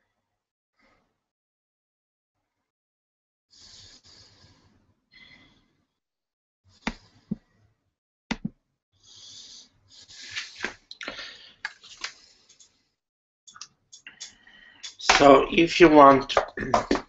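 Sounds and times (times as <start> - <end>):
breathing on microphone: 3.6 - 5.7, 9.1 - 12.8, 14.0 - 15.0.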